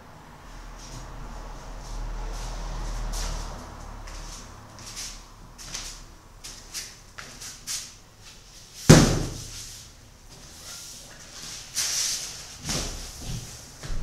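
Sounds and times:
canvas thudding on floor: 0:08.9 - 0:09.5.

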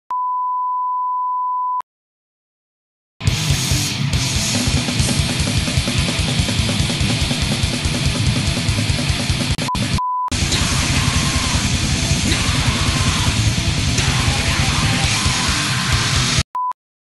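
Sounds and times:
steady test-tone beep: 0:00.1 - 0:01.8, 0:09.7 - 0:10.4
heavy metal music: 0:03.2 - 0:16.4.

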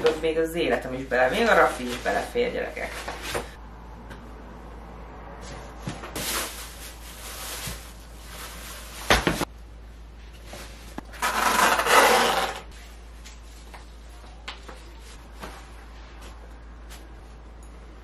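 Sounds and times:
clothes and bags rustling: 0:05.4 - 0:09.5.

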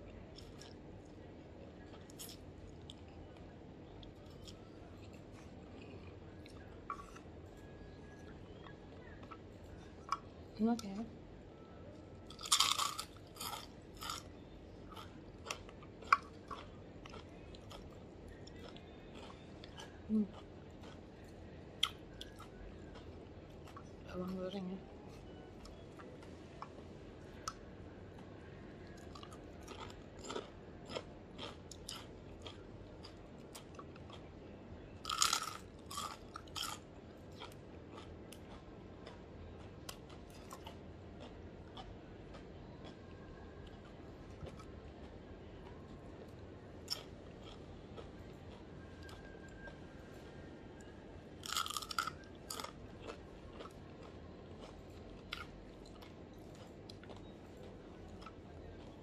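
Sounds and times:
person chewing crunchy food: 0:01.9 - 0:07.3, 0:12.2 - 0:24.0, 0:28.8 - 0:34.4, 0:35.0 - 0:49.8, 0:51.4 - 0:59.0.

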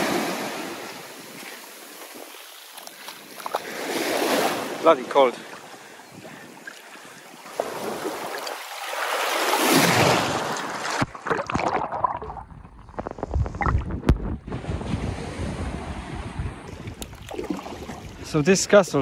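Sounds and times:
wind and water rushing: 0:00.0 - 0:19.0
wind buffeting microphone: 0:12.8 - 0:18.7.

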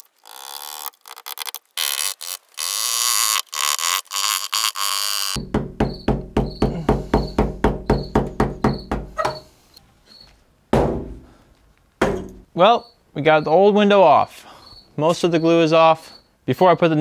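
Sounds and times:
background music with steady beat: 0:05.4 - 0:09.1.

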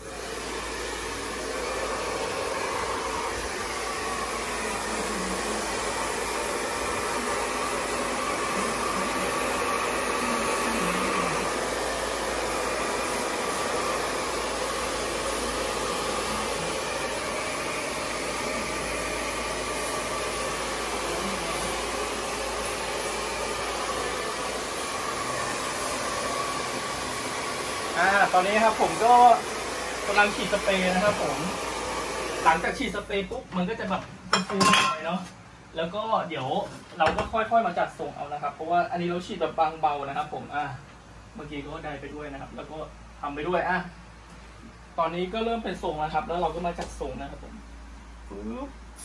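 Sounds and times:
hair dryer blowing: 0:00.0 - 0:33.4.

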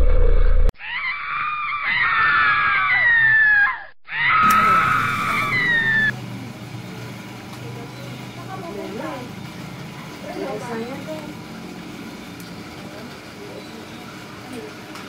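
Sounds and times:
young women screaming: 0:00.8 - 0:06.2.

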